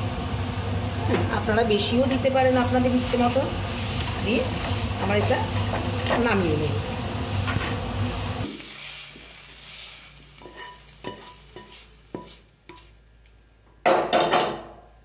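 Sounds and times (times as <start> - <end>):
faint pan sizzle: 0.0 - 13.6
metal spatula scraping pan: 10.4 - 12.9
spatula knocking pan: 10.4 - 12.9.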